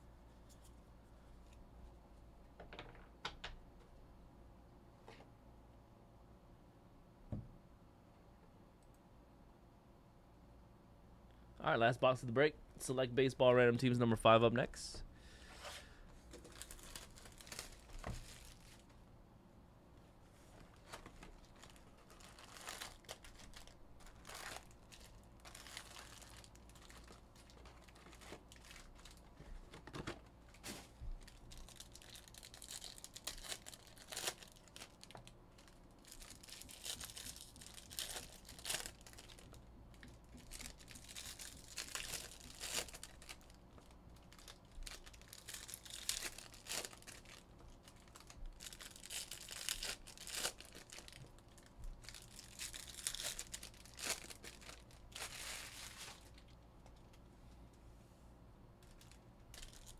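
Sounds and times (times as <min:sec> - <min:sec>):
foil wrappers tearing and crinkling: 0:16.4 - 0:18.9, 0:20.7 - 0:29.4, 0:30.6 - 0:56.6, 0:58.8 - 0:59.9.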